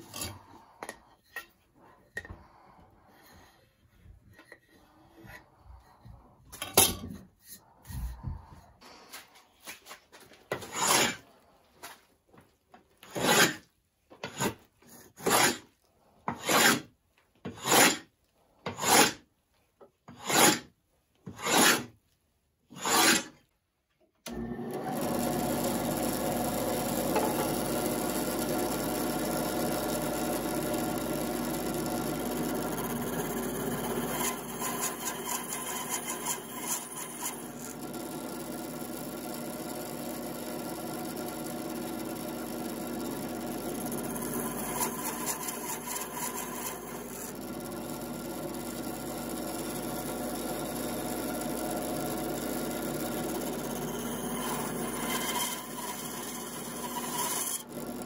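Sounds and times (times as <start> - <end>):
hand plane shaving wood: 7.4 - 12.0, 13.0 - 19.2, 20.1 - 20.7, 21.3 - 22.0, 22.7 - 23.4, 24.3 - 58.0
band saw cutting wood: 10.5 - 11.2, 13.1 - 13.6, 15.2 - 15.7, 16.3 - 16.9, 17.6 - 18.1, 18.7 - 19.2, 20.2 - 20.7, 21.3 - 21.9, 22.7 - 23.4, 24.3 - 58.0.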